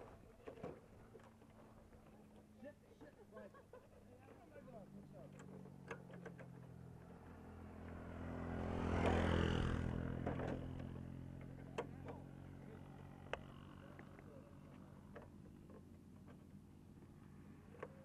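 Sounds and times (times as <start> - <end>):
vehicle passing on road: 4.6 - 15.6.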